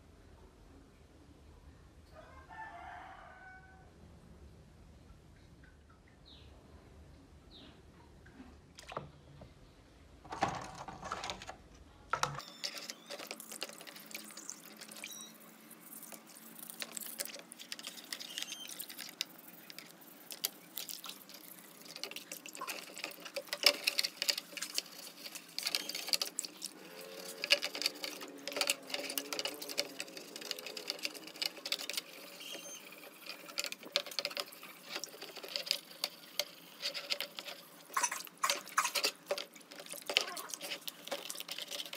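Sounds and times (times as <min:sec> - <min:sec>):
toothbrush scrubbing plastic: 0:12.2 - 0:41.9
water splashing and dripping: 0:12.4 - 0:41.9.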